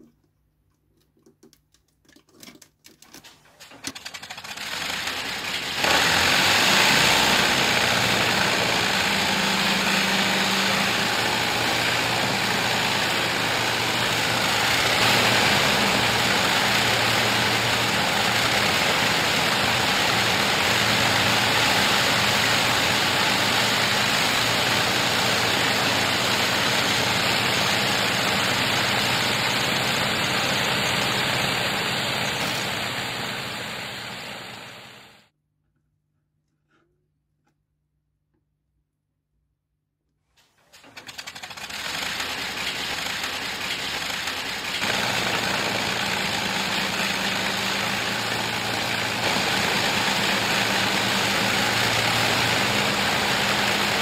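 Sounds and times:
piston aircraft engines droning: 6.6s - 35.0s, 41.4s - 54.0s.

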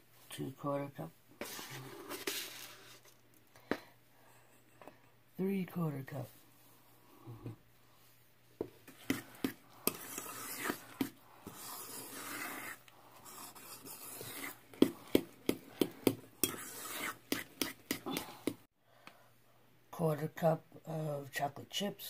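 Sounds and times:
spoon scraping metal bowl: 8.9s - 18.5s.

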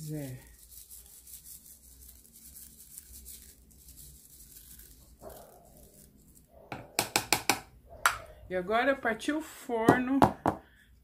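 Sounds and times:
sharp knocks: 6.7s - 8.2s.

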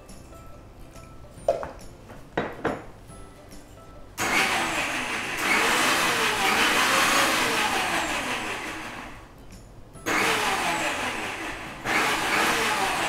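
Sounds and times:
mixer grinder motor whirring: 4.2s - 9.3s, 10.0s - 13.0s.

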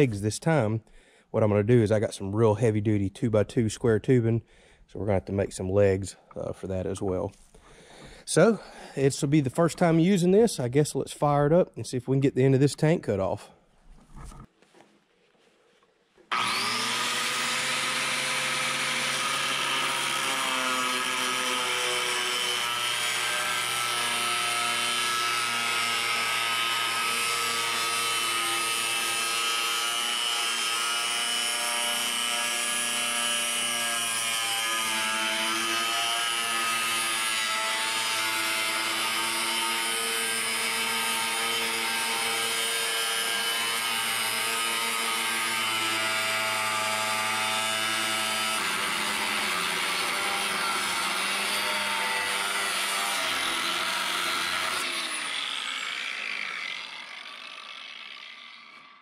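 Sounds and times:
angle grinder cutting steel: 16.3s - 59.0s.

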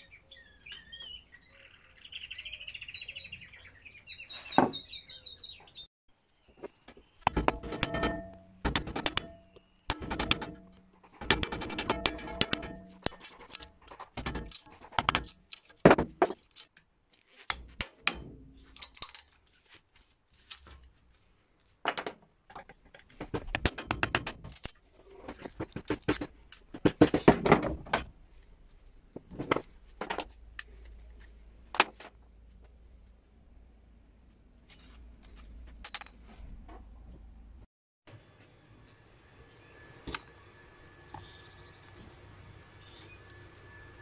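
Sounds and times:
metal scraping on wood: 7.3s - 19.8s.

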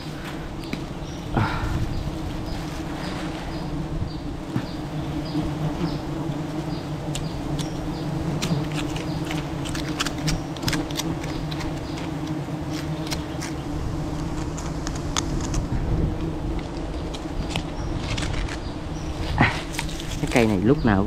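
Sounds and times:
bee swarm buzzing: 0.0s - 21.0s
sharp clicks and cracks: 8.4s - 13.6s.

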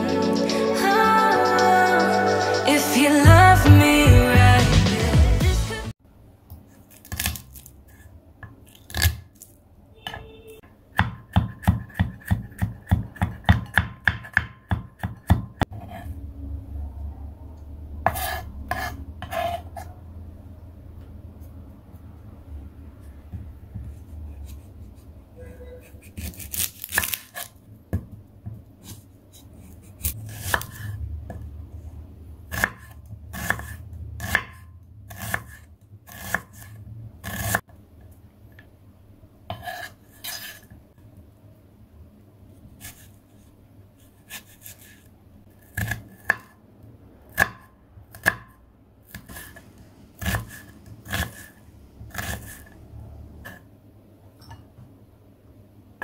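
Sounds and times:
knife chopping on wooden board: 11.0s - 16.0s, 32.5s - 37.6s, 50.2s - 52.7s.

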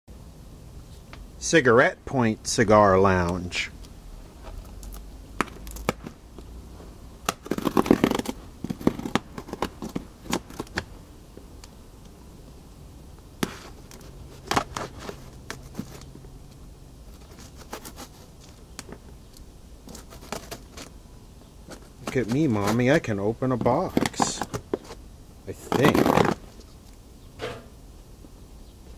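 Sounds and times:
tape tearing: 4.4s - 6.2s, 7.2s - 10.9s, 13.4s - 16.1s, 17.1s - 19.0s, 19.8s - 20.9s, 21.7s - 26.8s
knife cutting packing tape: 7.2s - 10.8s, 17.2s - 18.5s, 19.9s - 20.9s, 25.6s - 26.4s
paper rustling: 13.4s - 16.1s, 19.8s - 20.9s, 25.6s - 26.7s.

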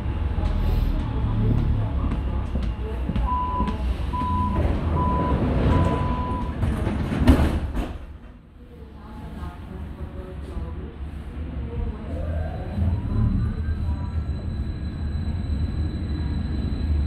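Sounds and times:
low hum of train: 0.0s - 17.0s
door warning beeps: 3.2s - 6.6s.

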